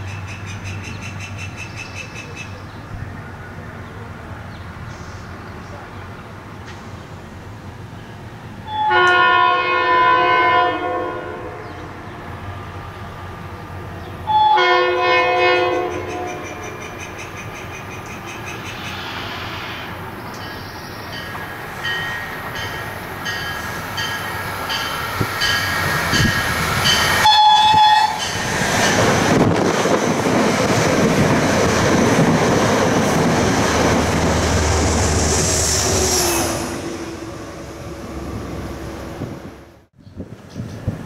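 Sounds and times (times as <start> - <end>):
train horn: 8.6 - 12.0, 14.3 - 16.6, 27.2 - 28.2
train wheels rumbling on rail: 11.4 - 41.0.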